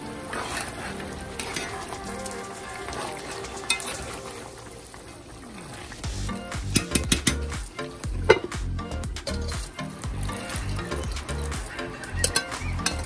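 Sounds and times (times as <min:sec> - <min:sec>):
curry sizzling and bubbling in pot: 0:00.0 - 0:13.0
spatula clinking against pot: 0:06.8 - 0:08.6, 0:09.2 - 0:13.0.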